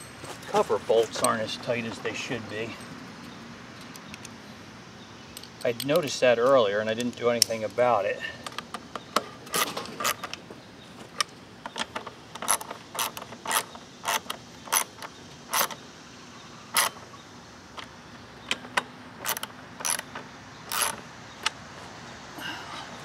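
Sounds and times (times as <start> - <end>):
ratchet wrench clicking: 11.7 - 15.8, 16.7 - 17.0, 18.5 - 21.5.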